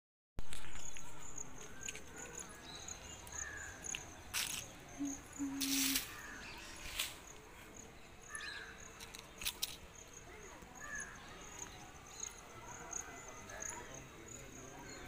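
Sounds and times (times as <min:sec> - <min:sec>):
insects chirping: 0:00.5 - 0:15.0
short bird calls: 0:05.0 - 0:07.2.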